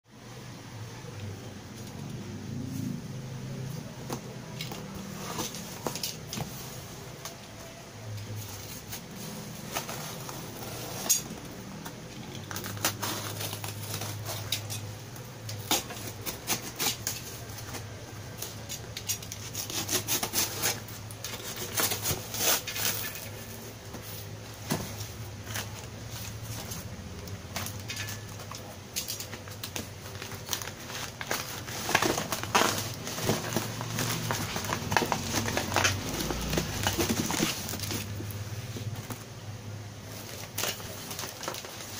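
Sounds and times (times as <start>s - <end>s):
plastic wrapping crinkling: 8.2s - 39.3s, 40.0s - 41.9s
cardboard scraping and rubbing: 8.4s - 11.2s, 19.4s - 26.7s, 30.1s - 39.2s
packing tape cut with blade: 15.6s - 17.4s, 19.2s - 23.2s.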